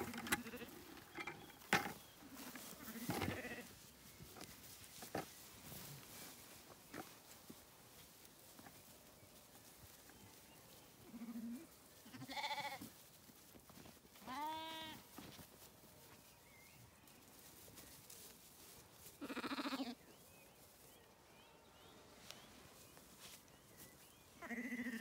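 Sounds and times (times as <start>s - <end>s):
lambs bleating: 0.2s - 0.8s, 2.4s - 3.7s, 11.1s - 12.8s, 14.2s - 15.0s, 19.2s - 20.0s, 24.4s - 25.0s.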